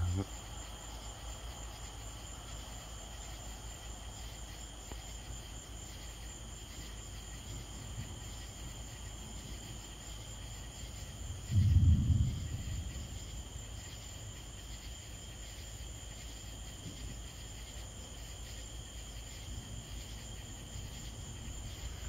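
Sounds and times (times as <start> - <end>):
crickets and insects chirping: 0.0 - 22.0
loud low thump: 11.5 - 12.9.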